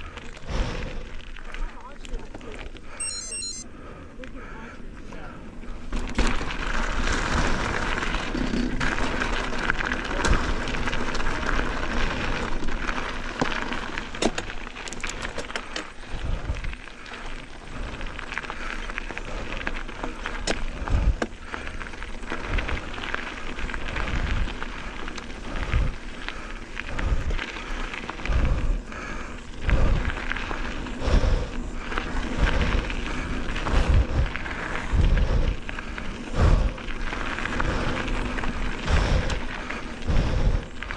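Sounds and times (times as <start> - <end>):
bike clicks and rattles: 0.0 - 3.0, 5.0 - 40.9
tyre and trail noise: 0.0 - 40.9
wind rushing over microphone: 31.0 - 40.9.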